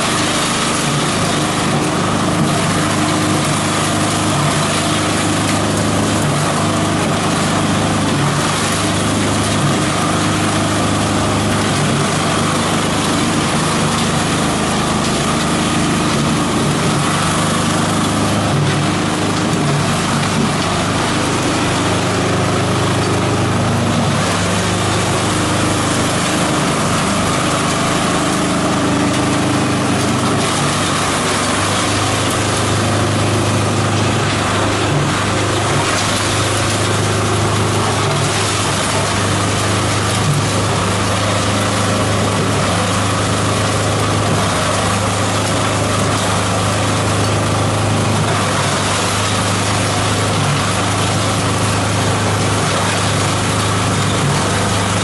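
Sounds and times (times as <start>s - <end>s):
shredder machine shredding plants: 0.0s - 55.0s.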